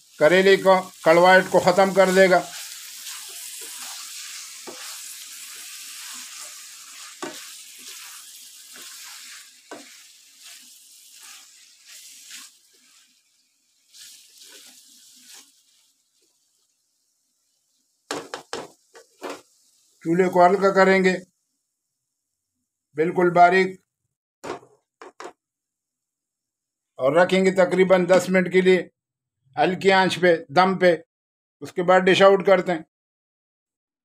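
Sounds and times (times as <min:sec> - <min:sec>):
spatula stirring and scraping: 0:00.0 - 0:17.0, 0:17.6 - 0:20.0
food sizzling in a wok: 0:00.0 - 0:22.9.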